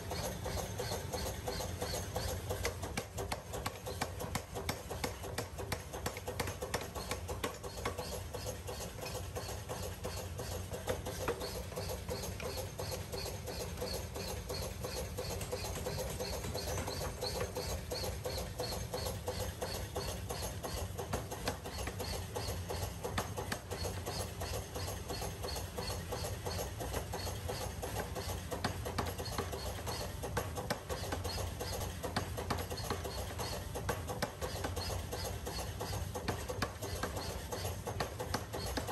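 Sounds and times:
machine running: 0.0 - 30.3.

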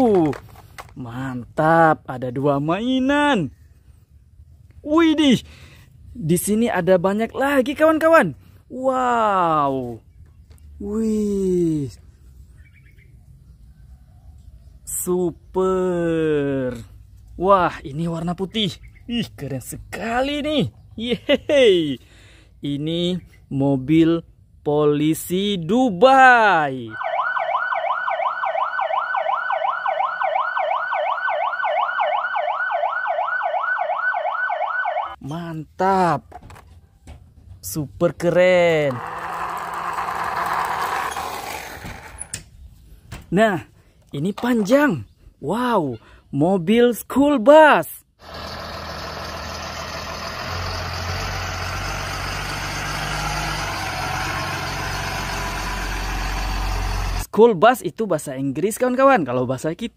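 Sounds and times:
police siren yelping: 26.9 - 35.2
bus engine driving past: 48.2 - 57.3.

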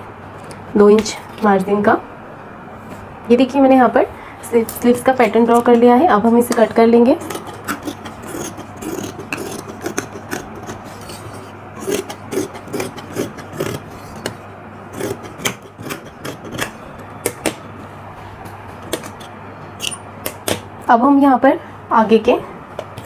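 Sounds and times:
fabric rasping as cut: 7.2 - 16.8.

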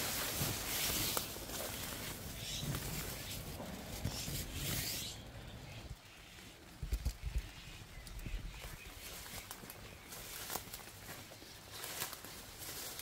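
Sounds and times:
leaves rustling against body: 0.0 - 13.0.

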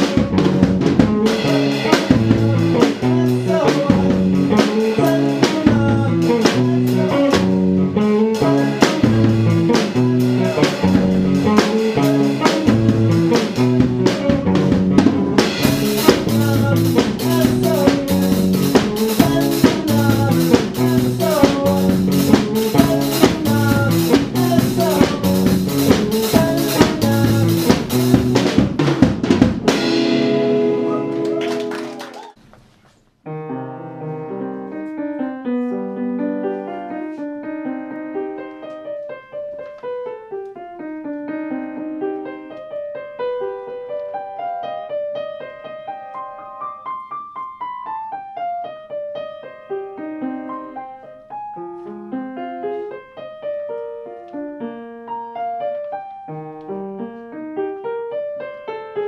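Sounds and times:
bass and guitar: 0.0 - 32.1
drum kit playing: 0.0 - 32.4.

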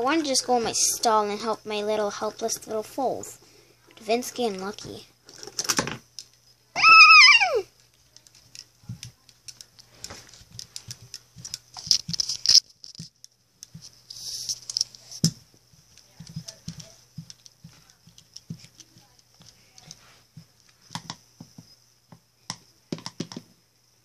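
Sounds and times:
plastic toys tapping and scraping: 3.9 - 6.4, 7.8 - 23.6.

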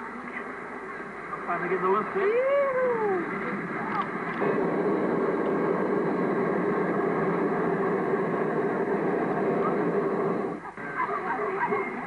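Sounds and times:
propane burner roaring: 0.0 - 12.0.

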